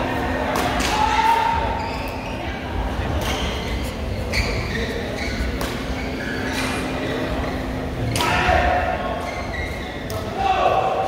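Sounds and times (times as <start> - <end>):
racket hitting shuttlecock: 5.6 - 5.9.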